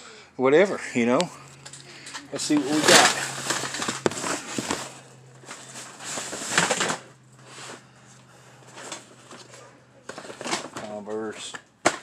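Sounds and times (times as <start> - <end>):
cardboard scraping and rustling: 2.4 - 7.9, 8.7 - 11.0.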